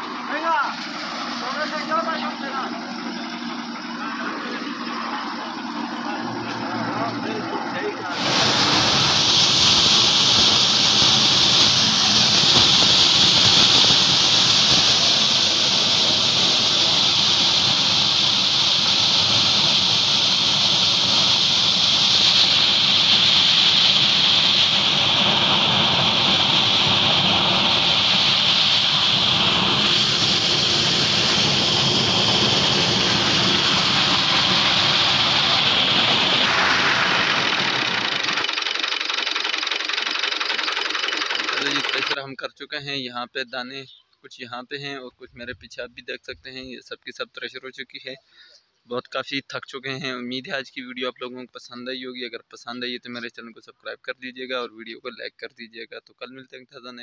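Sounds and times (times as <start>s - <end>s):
threshing machine running: 0.0s - 42.2s
grain pouring: 8.1s - 42.2s.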